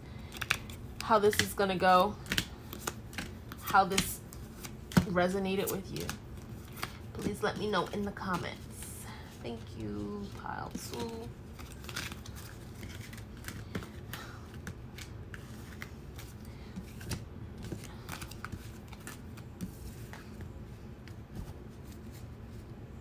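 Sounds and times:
cards clicking and tapping: 0.2s - 8.4s, 10.3s - 20.5s.

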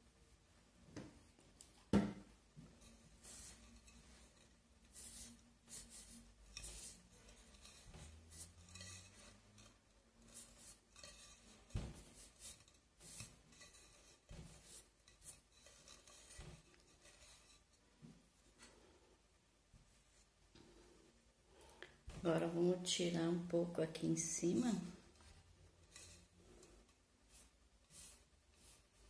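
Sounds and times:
cloth rubbing on vase: 2.6s - 18.1s.

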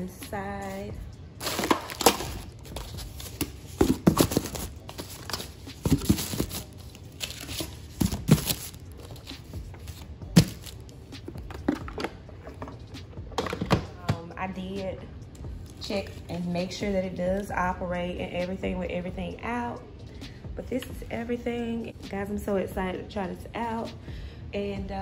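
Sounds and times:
plastic wrap crinkling: 1.4s - 10.9s.

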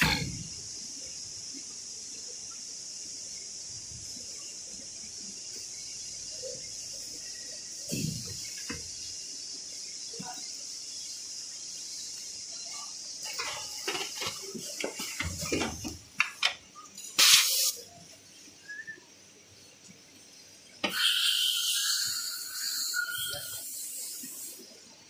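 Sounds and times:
packing machine hiss: 0.0s - 1.3s, 2.2s - 16.1s, 16.9s - 19.0s, 20.8s - 25.0s
short loud hiss: 17.0s - 18.0s, 20.8s - 24.7s.

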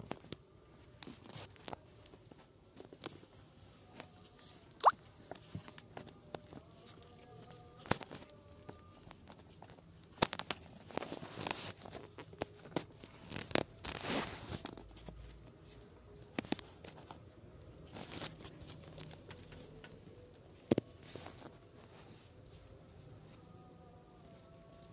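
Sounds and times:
scratchy rustles and scrapes: 6.5s - 17.2s, 17.8s - 23.5s.

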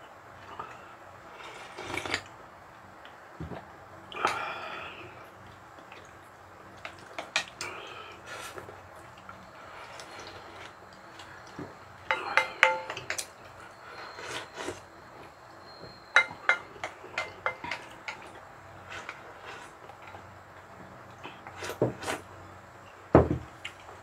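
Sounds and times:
utensils clinking against dishes: 11.1s - 14.8s, 15.7s - 19.2s.

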